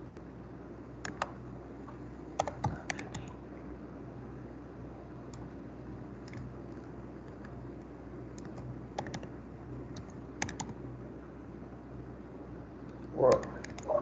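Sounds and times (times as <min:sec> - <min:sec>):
faint steady hum: 0:00.0 - 0:14.0
computer keyboard keystrokes: 0:01.0 - 0:01.4, 0:02.4 - 0:03.4, 0:06.2 - 0:07.6, 0:08.3 - 0:09.3, 0:09.9 - 0:10.8, 0:13.3 - 0:14.0.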